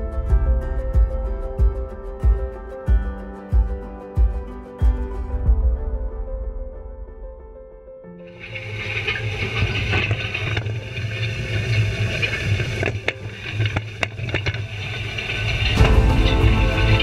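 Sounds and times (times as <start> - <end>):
tractor engine rumbling: 8.4 - 17.0.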